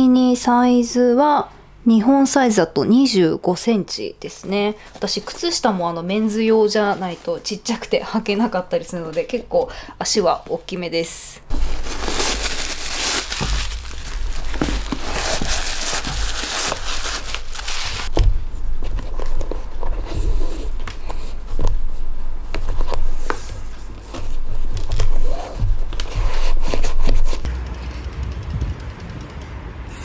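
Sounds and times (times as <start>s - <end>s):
sneakers crinkling and rustling: 11.5s - 27.5s.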